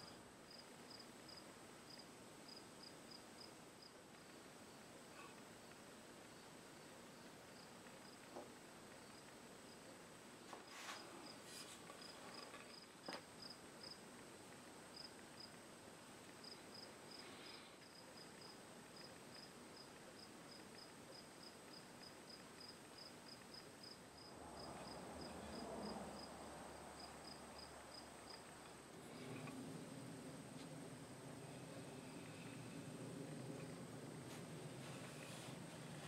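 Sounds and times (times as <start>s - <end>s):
soft rustle: 10.3s - 13.3s, 28.3s - 36.0s.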